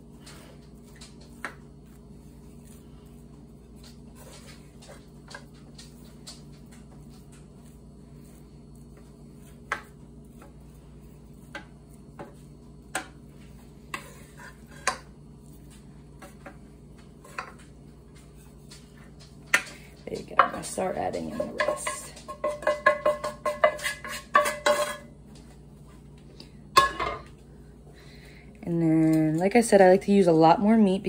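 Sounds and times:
spatula scraping metal pan: 0:13.9 - 0:15.1, 0:20.4 - 0:25.1
spatula knocking against pans: 0:18.8 - 0:25.1.

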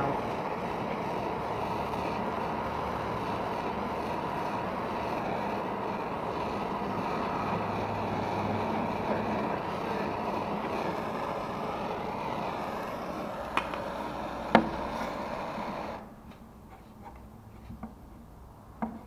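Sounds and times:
blowtorch flame hissing: 0:00.0 - 0:16.2.

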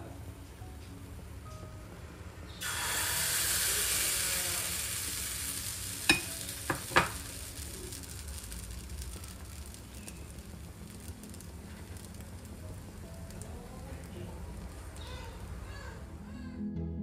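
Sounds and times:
batter sizzling in a hot pan: 0:02.6 - 0:16.2.

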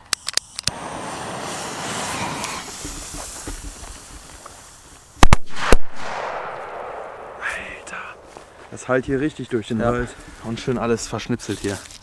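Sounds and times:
fuses hissing and spitting: 0:00.7 - 0:05.2
firecracker bangs: 0:05.2 - 0:08.3.

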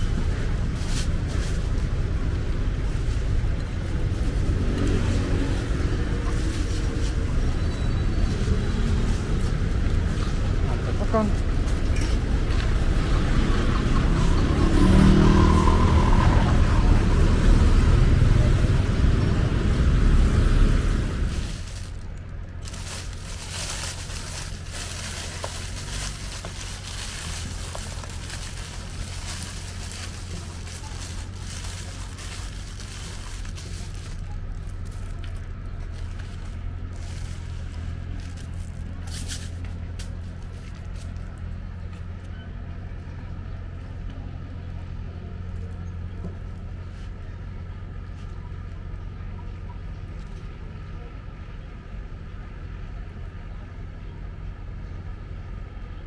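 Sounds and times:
street traffic hum: 0:00.0 - 0:56.0
plastic bag crinkling: 0:21.3 - 0:39.6.

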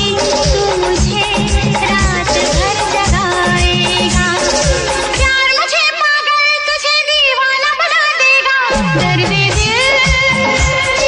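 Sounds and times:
low drum beat: 0:00.0 - 0:05.3, 0:08.8 - 0:11.0.

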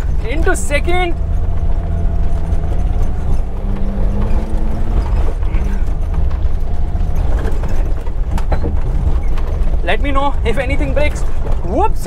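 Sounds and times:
car body rattling: 0:00.0 - 0:12.0
car engine pulling uphill: 0:00.0 - 0:12.0.

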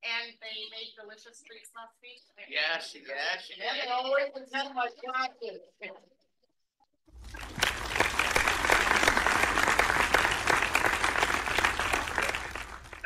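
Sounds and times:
crowd applauding: 0:07.1 - 0:13.0.

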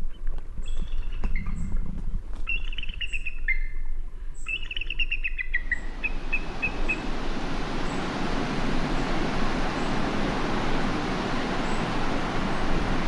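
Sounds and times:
eagle chittering: 0:04.5 - 0:08.2
surf breaking on rocky shore: 0:05.8 - 0:13.0.

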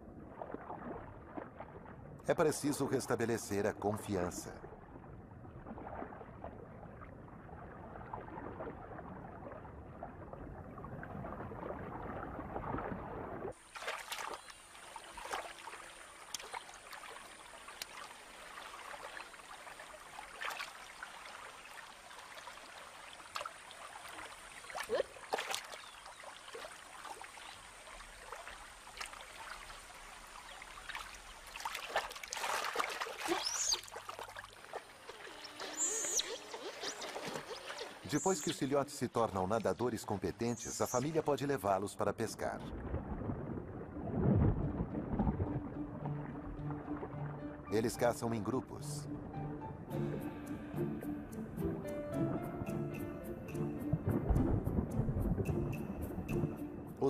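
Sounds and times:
small water splashes: 0:00.0 - 0:02.9, 0:03.8 - 0:41.3
muffled underwater water sound: 0:00.0 - 0:50.8, 0:53.5 - 0:57.0
water trickling and lapping: 0:00.0 - 0:57.0.

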